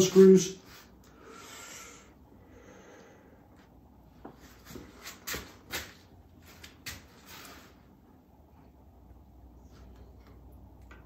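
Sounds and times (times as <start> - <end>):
breath out through nose: 1.2 - 3.4.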